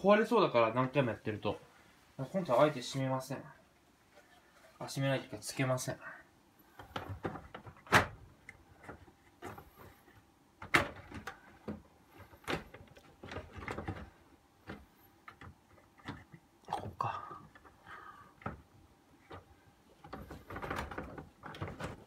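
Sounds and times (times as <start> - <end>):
plastic knocks and clicks: 6.8 - 16.4, 18.4 - 22.0.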